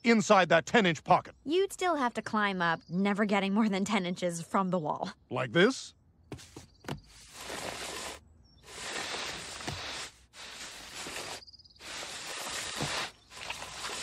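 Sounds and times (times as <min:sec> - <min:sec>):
body scraping up a wall: 0:06.3 - 0:14.0.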